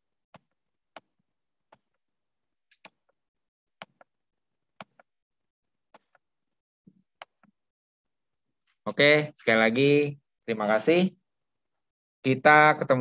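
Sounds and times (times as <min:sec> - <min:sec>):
computer mouse clicks: 0:02.7 - 0:03.2, 0:03.8 - 0:04.2, 0:04.8 - 0:05.1.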